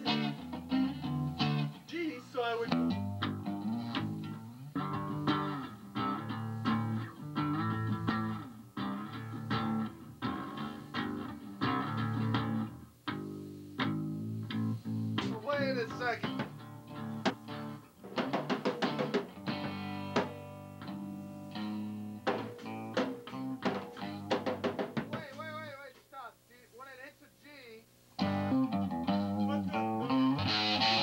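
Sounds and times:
electric guitar: 0.0s - 25.6s, 28.2s - 31.0s
electric bass: 2.7s - 17.9s, 28.2s - 31.0s
drum kit beat: 8.9s - 26.1s.

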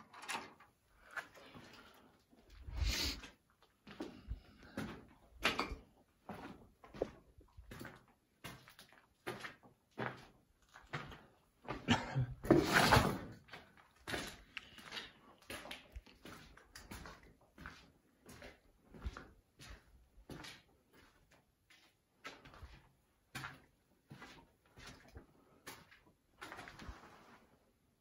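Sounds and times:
footsteps on gritty concrete: 6.3s - 11.9s, 13.4s - 26.9s.

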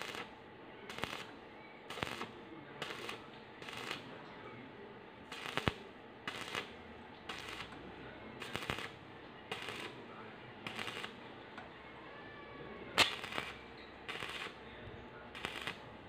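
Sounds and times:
welding arc crackling: 0.0s - 4.0s, 5.3s - 7.8s, 8.4s - 10.0s, 10.6s - 11.2s, 13.0s - 14.6s, 15.3s - 15.9s.

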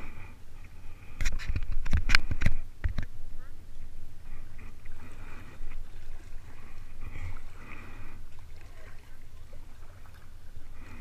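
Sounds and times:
paddle splashing in water: 4.6s - 11.0s.

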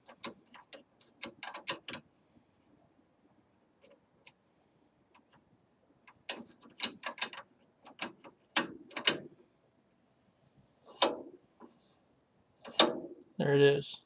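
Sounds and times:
rifle bolt metal clicks and scrapes: 0.0s - 2.1s, 6.1s - 9.4s, 10.8s - 12.0s, 12.6s - 13.1s.

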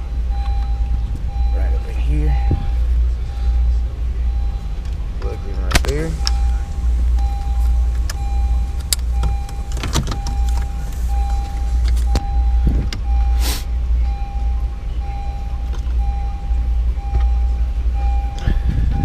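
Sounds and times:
car warning chime: 0.0s - 19.0s
low pulsing hum: 0.0s - 19.0s
short hiss: 13.4s - 13.7s.

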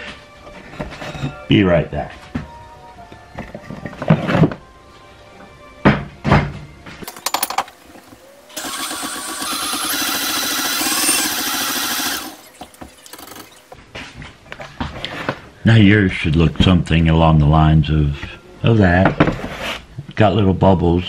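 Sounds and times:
electric mixer beating batter: 8.5s - 13.5s.

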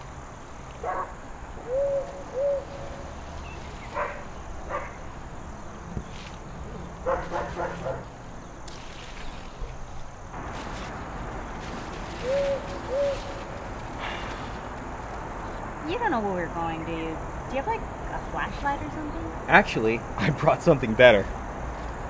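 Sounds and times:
dog barking: 0.8s - 1.2s, 3.9s - 5.0s, 7.0s - 8.1s.

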